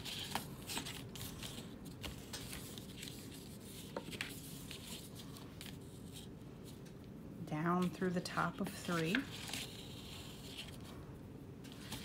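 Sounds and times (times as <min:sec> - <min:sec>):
paper rustling and ticking: 0:00.0 - 0:05.8.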